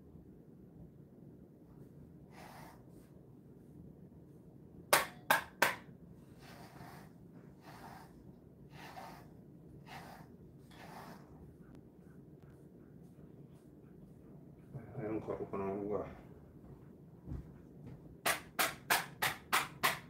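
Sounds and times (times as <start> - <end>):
brush stroking dog fur: 1.8 - 4.5, 6.2 - 15.8.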